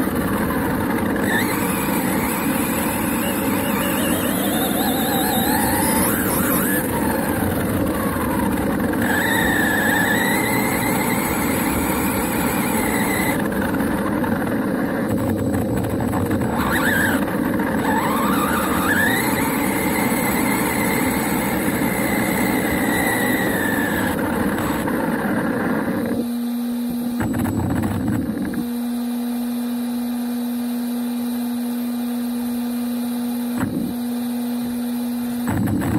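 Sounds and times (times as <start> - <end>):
toy truck motor whine: 0.0 - 26.2
rattling drivetrain and tyres: 0.0 - 26.3.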